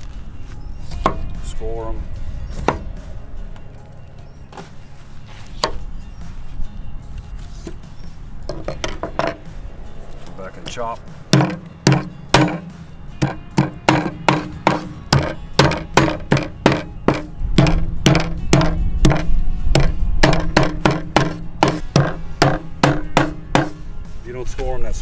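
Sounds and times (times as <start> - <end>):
hatchet chopping on cutting board: 11.3 - 23.8.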